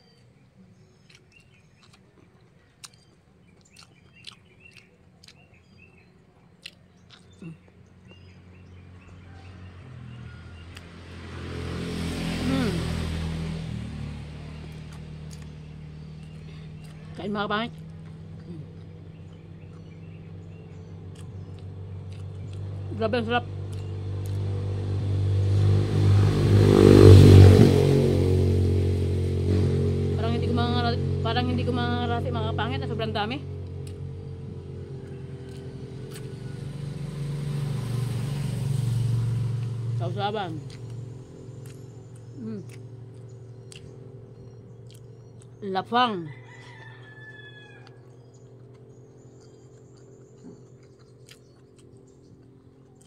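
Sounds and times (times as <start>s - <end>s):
faint clicks of eating: 1.0s - 7.9s, 41.6s - 45.6s, 47.8s - 53.0s
engine running: 5.4s - 53.0s
steady low hum: 28.5s - 46.3s.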